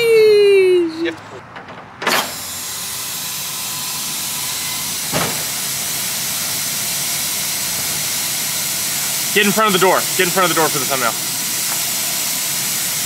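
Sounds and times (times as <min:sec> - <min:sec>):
compressed air hissing: 0:02.2 - 0:13.0.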